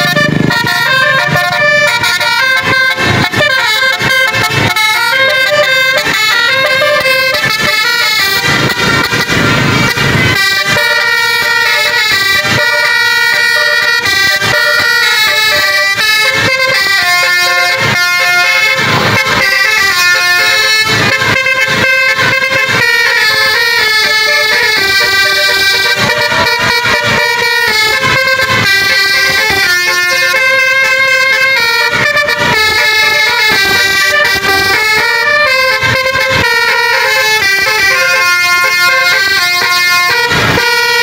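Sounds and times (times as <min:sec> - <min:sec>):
multi-tone bus horn melody: 0:00.0 - 0:41.0.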